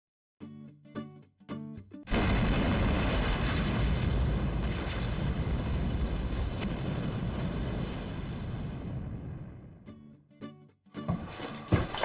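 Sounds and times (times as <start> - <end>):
fiery blast rumble: 2.1 - 9.9.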